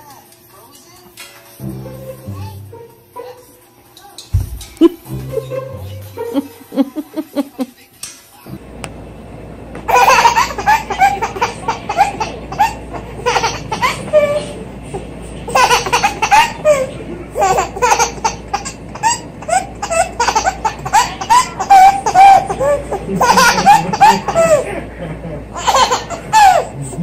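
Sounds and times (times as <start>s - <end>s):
baby laughing: 4.7s - 7.7s, 9.9s - 26.8s.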